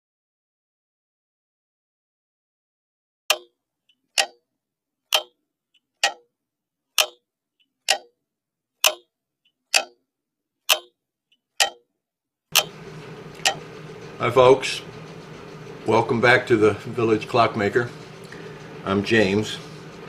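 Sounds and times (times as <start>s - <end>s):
mechanical clock ticking: 3.3s - 4.5s, 5.1s - 6.3s, 7.0s - 8.2s, 8.8s - 10.0s, 10.6s - 11.9s, 12.5s - 16.4s.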